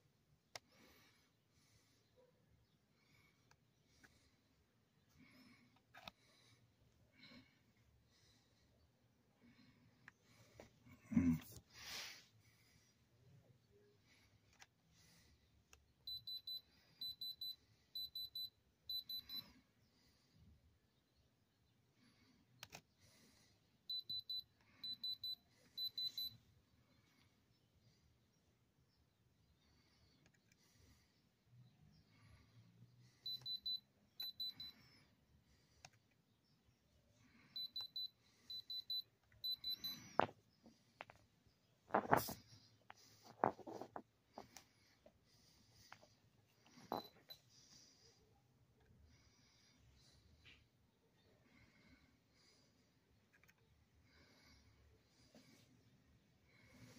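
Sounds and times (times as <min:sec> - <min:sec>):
diamond tester high beeps: 0:16.1 - 0:19.5, 0:23.9 - 0:26.4, 0:33.2 - 0:34.8, 0:37.6 - 0:40.1.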